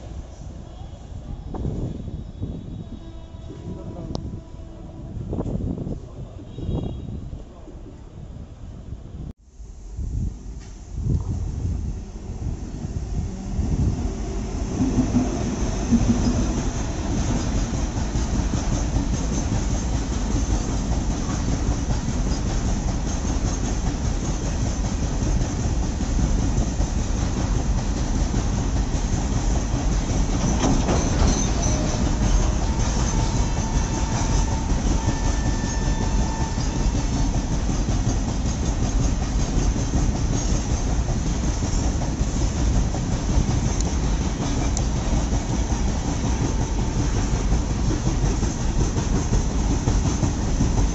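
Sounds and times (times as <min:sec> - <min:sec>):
train wheels rolling on rails: 0:10.5 - 0:50.9.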